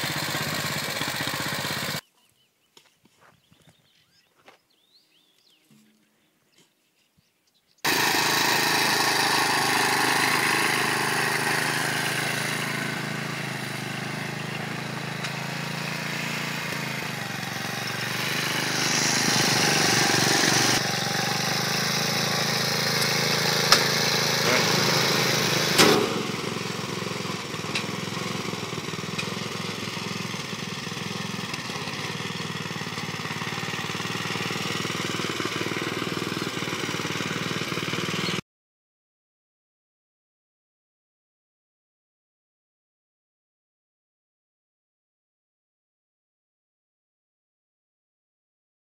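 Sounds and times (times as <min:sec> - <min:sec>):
tractor engine running: 0:00.0 - 0:02.0, 0:07.9 - 0:38.4.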